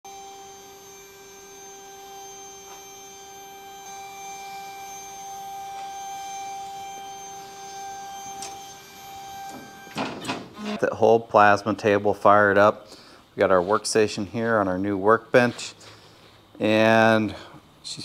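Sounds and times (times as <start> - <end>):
stepper motors whining: 0.1 - 10.8.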